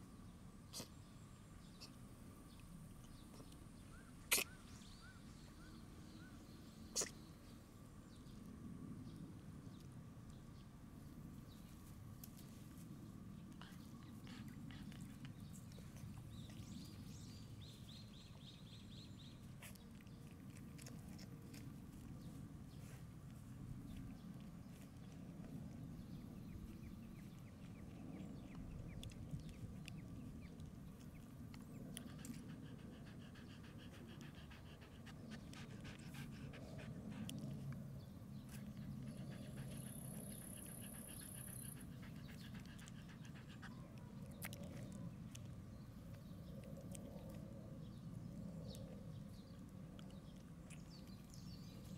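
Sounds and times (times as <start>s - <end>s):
dog panting softly: 11.6s - 51.9s.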